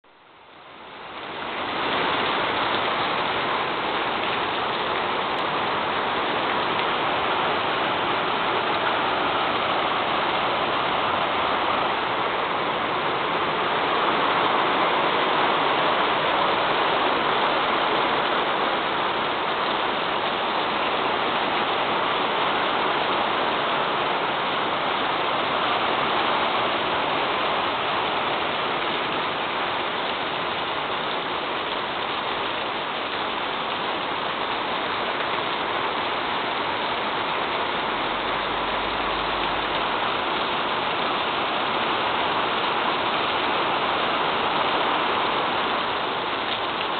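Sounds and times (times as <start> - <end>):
heavy rain on pavement: 0.0 - 46.9.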